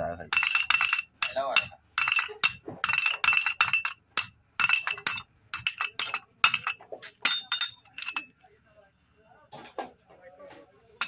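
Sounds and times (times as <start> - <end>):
steel rod clinking against bearing: 0.3 - 8.4.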